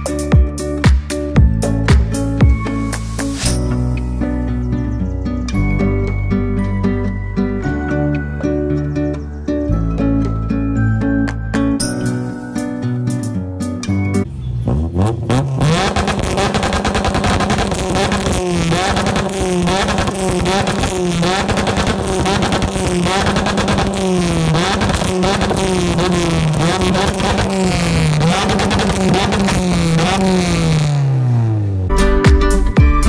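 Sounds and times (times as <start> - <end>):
car engine revving: 13.8 - 31.9.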